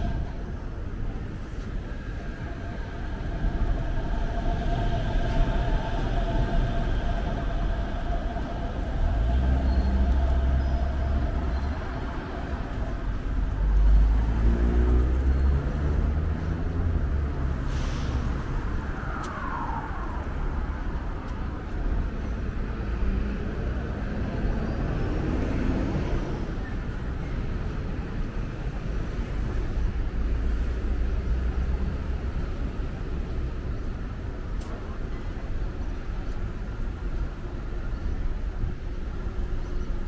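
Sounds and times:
vehicles passing: 0:00.0 - 0:40.0
falling whine: 0:01.8 - 0:14.6.

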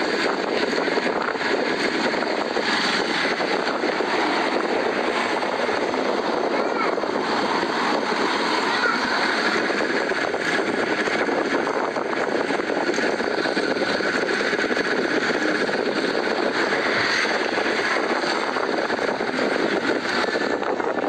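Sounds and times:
vehicle driving on dirt road: 0:00.0 - 0:21.0.

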